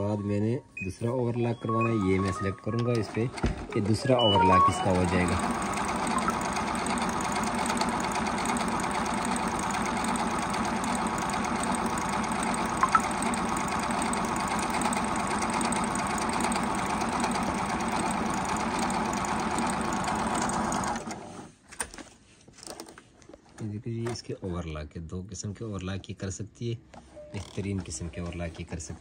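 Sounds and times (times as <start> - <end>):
sewing machine running: 2.9 - 21.5.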